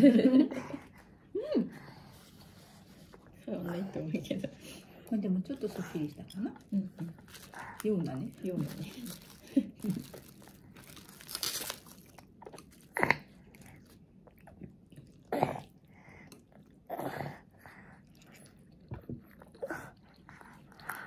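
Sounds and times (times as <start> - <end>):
toddler chewing: 7.2 - 21.0.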